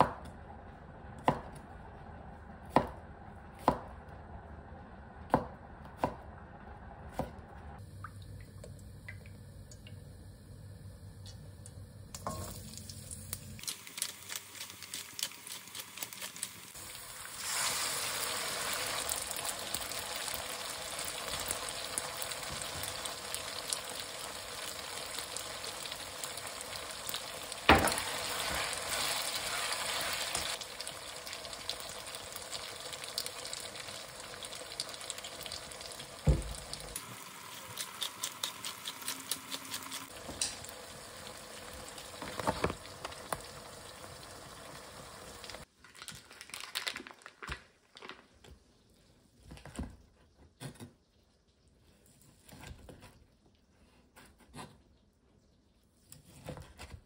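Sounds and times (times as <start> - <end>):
food sizzling in a frying pan: 12.2 - 45.7.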